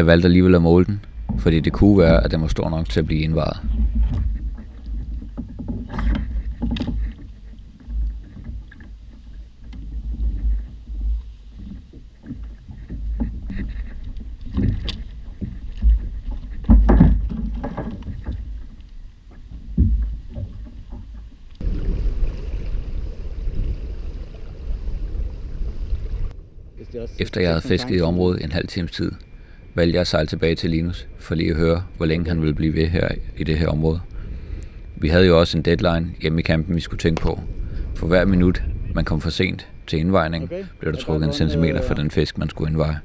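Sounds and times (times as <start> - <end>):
wind rumble on microphone: 0.0 - 43.0
knocks and clatter on kayak: 1.1 - 22.8
rush of wind and water: 19.5 - 28.0.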